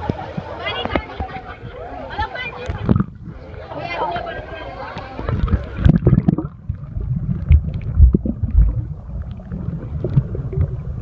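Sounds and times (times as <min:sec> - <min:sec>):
muffled underwater pool rumble: 0:00.0 - 0:11.0
dull underwater thuds: 0:05.1 - 0:10.9.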